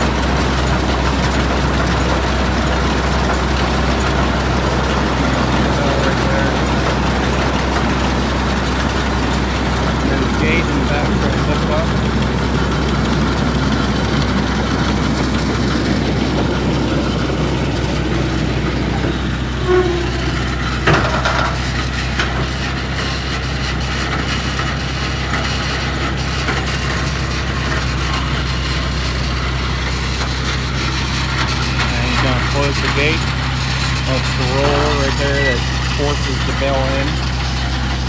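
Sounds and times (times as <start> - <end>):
tractor engine running: 0.0 - 38.0
baler tailgate clunk: 18.7 - 22.5
brief squeak: 19.6 - 20.3.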